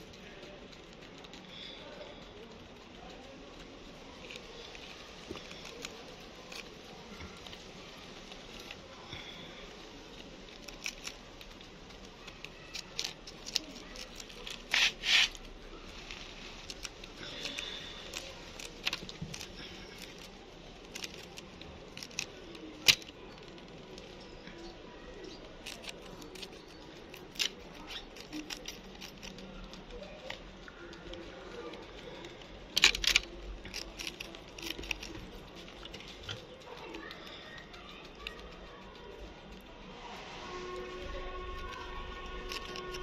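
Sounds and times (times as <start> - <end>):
hamster scuffling: 14.2 - 15.4.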